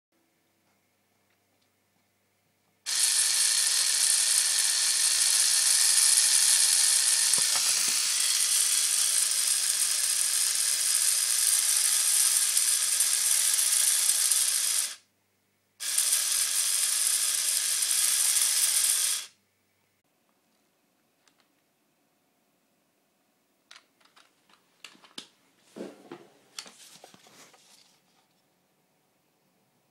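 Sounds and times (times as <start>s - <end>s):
small motor buzzing: 2.9s - 15.0s, 15.8s - 19.4s.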